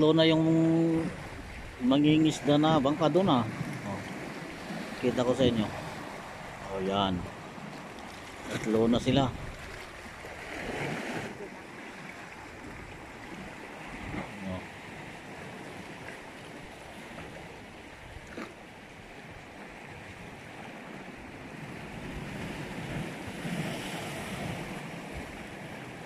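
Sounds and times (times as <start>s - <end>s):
waves washing against rocks: 0.0s - 18.6s, 19.2s - 26.0s
wind on microphone: 8.4s - 11.5s, 12.6s - 14.6s.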